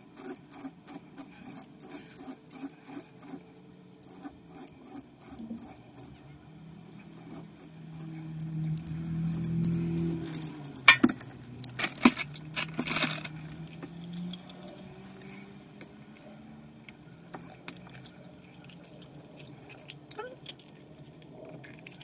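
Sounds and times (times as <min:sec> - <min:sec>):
small metal parts clinking: 0:06.9 - 0:16.3.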